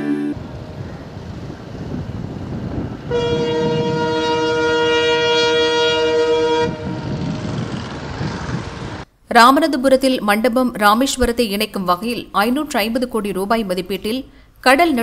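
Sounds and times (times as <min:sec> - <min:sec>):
train rumbling: 0:00.0 - 0:09.0
locomotive horn blast: 0:03.0 - 0:07.6.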